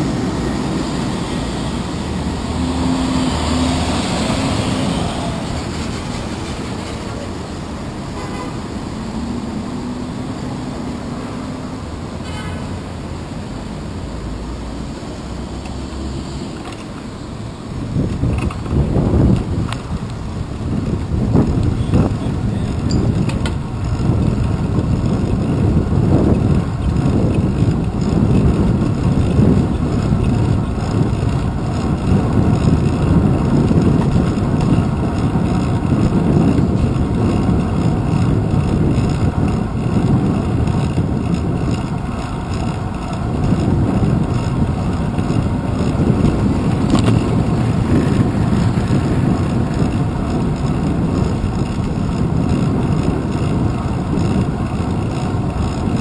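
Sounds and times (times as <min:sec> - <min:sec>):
wind and road rumble: 0:00.0 - 0:56.0.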